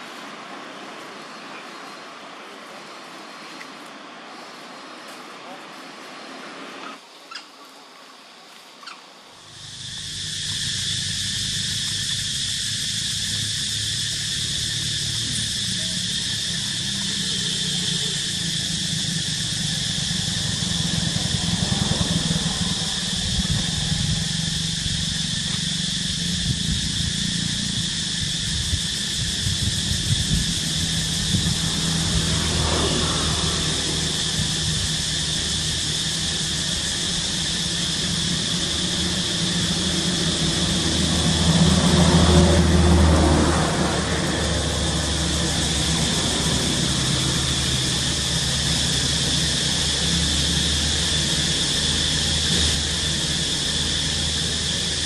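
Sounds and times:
high-pitched hiss: 0.0 - 55.0
low engine hum: 9.5 - 55.0.

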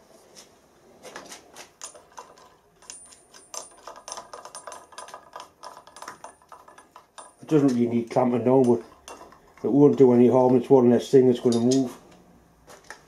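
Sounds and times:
metallic clicks of steel clamps: 1.6 - 10.6, 11.3 - 13.0.

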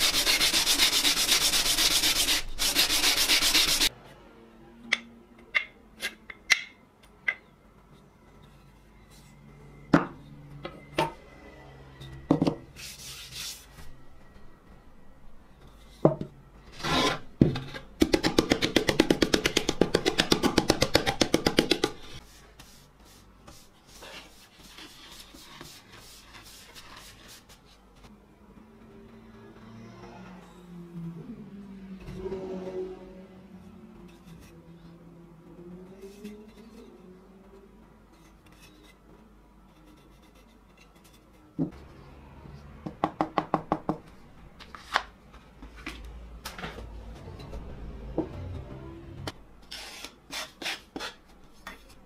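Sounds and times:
plane rubbed on sandpaper: 0.0 - 3.9.

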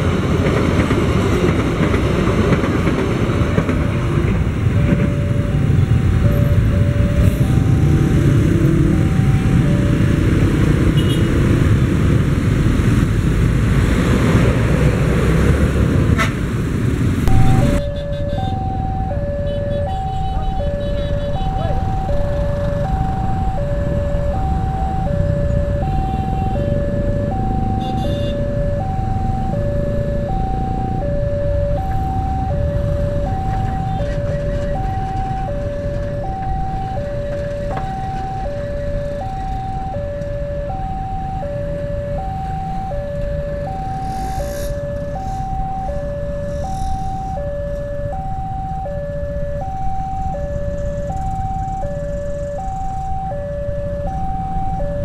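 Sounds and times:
two-tone crossing warning alarm: 0.0 - 11.4, 17.2 - 55.0.

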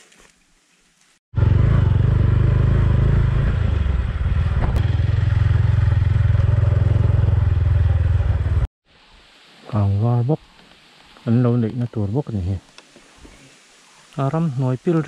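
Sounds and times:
motorcycle engine running: 1.4 - 8.7.

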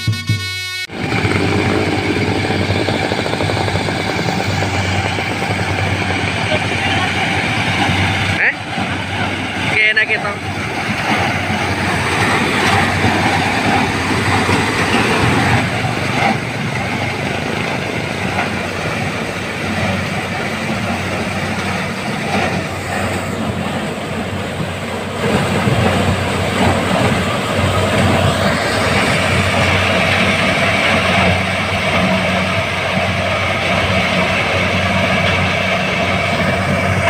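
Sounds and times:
combine harvester running: 0.0 - 37.0.

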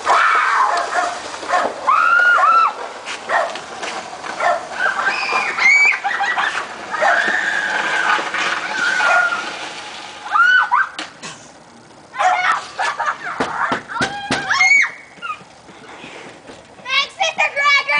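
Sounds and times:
girls shrieking and squealing: 0.0 - 0.8, 1.8 - 2.8, 4.7 - 9.6, 10.2 - 11.0, 12.1 - 15.4.

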